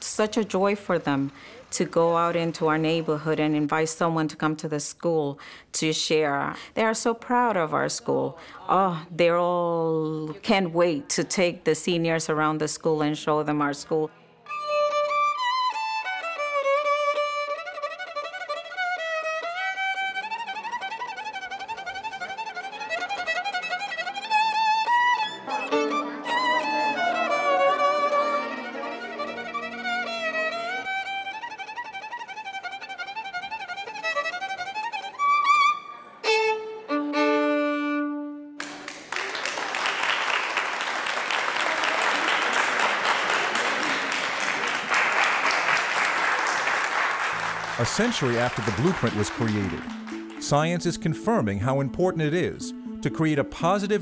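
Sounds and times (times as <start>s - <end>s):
audience applause: 1.0s - 3.2s, 25.3s - 31.0s, 38.6s - 50.7s
solo violin melody: 14.4s - 38.6s, 47.4s - 54.0s.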